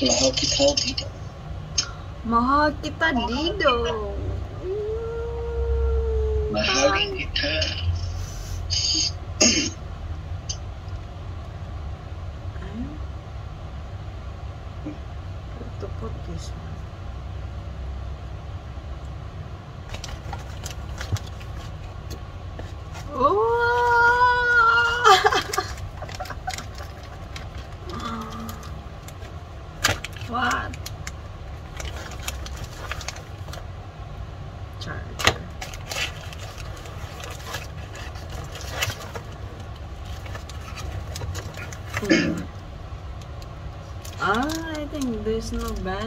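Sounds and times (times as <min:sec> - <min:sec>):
low hum: 0:00.0 - 0:46.0
person's high whining voice: 0:04.5 - 0:07.6, 0:23.1 - 0:25.3
packaging clicks and rustles: 0:19.9 - 0:23.1, 0:25.2 - 0:33.7, 0:35.5 - 0:42.1.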